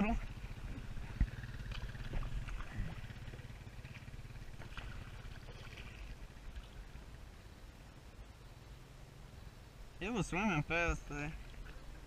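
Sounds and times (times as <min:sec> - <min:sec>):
low rumble: 0:00.0 - 0:08.3
paddle splashes: 0:00.6 - 0:07.2, 0:11.2 - 0:12.0.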